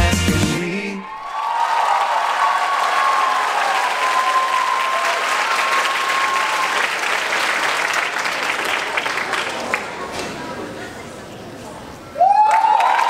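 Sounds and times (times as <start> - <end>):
held high cheer: 1.0 - 7.5, 12.2 - 13.0
audience applauding: 1.1 - 10.2, 12.2 - 13.0.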